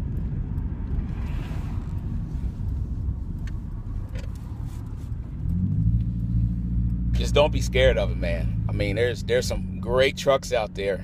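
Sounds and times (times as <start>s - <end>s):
faint clicks: 0.0s - 7.8s
vehicle cabin rumble: 0.0s - 11.0s.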